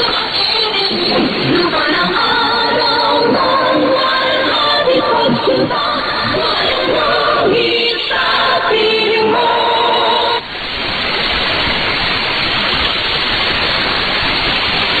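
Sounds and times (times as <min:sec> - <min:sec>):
song on shortwave radio: 0:00.0 - 0:10.4
shortwave static and hiss: 0:00.0 - 0:15.0.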